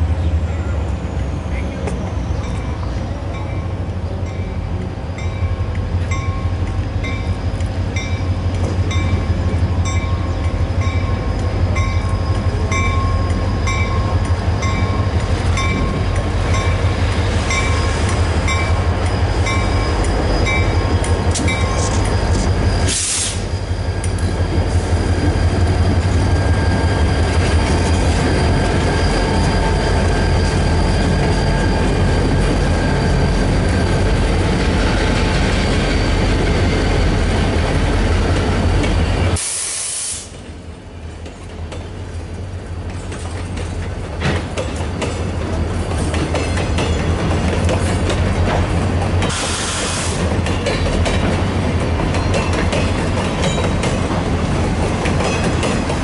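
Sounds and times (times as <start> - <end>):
diesel locomotive engine rumble: 0.0 - 56.0
train wheels on rails: 0.0 - 56.0
locomotive bell ringing: 2.4 - 34.8, 50.6 - 54.1
short air hiss: 22.9 - 23.5, 39.4 - 40.4, 49.3 - 50.2.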